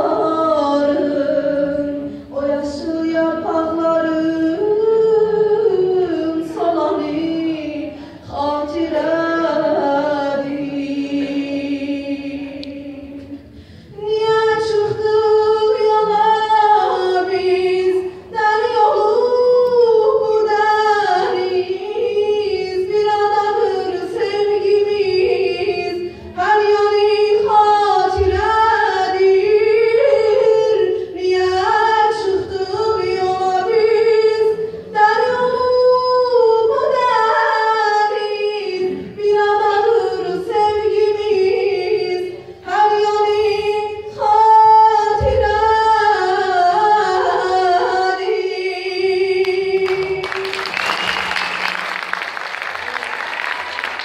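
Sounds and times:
woman singing into a microphone: 0.0 - 50.7
singer breathing: 7.9 - 8.3, 13.4 - 14.0.

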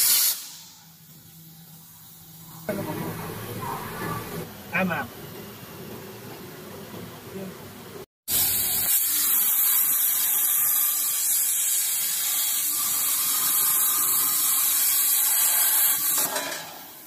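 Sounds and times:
plasma torch arc hissing: 0.0 - 2.7, 8.3 - 17.0.

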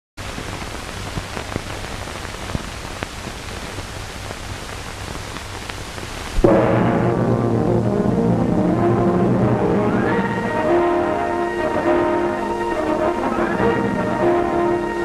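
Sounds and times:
film soundtrack hiss and crackle: 0.2 - 15.0
loud music: 6.4 - 15.0
low hum: 6.4 - 15.0.

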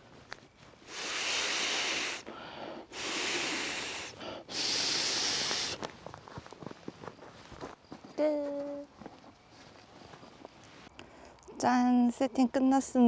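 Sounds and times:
breaths blown into mat valve: 0.8 - 2.3, 2.9 - 5.8.

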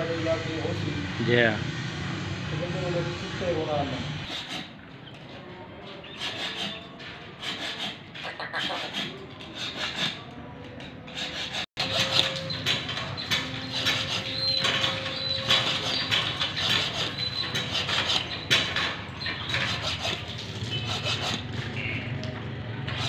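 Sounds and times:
file rasping on blade: 4.2 - 4.8, 6.0 - 21.5.

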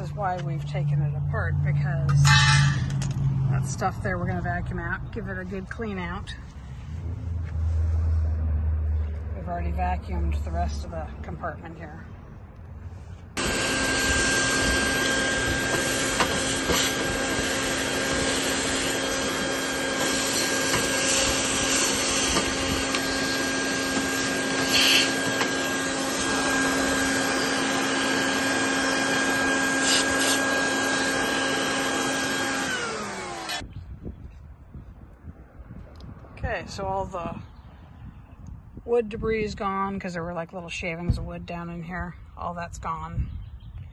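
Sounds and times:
vacuum cleaner running with whine: 13.4 - 33.6.

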